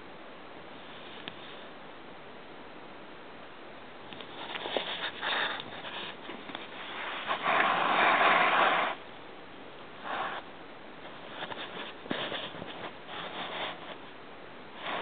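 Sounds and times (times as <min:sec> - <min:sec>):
rustling and scuffing: 0:11.1 - 0:14.0.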